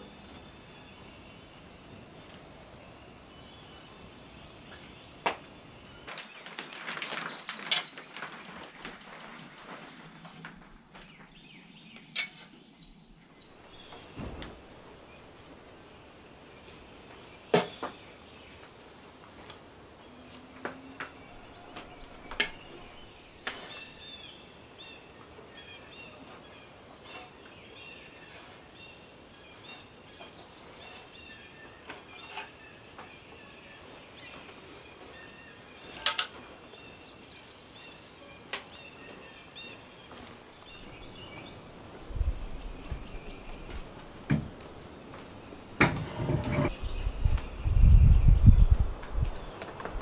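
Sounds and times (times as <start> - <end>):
songbirds chirping: 0.0 - 50.0
shovel clacking and scraping: 35.9 - 36.4.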